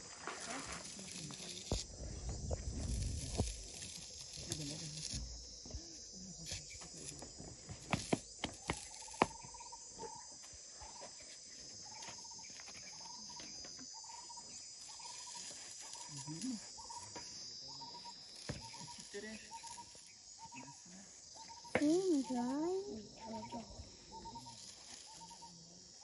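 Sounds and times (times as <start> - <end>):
elephant tearing up grass: 0.0 - 5.1
insects chorus: 0.0 - 26.0.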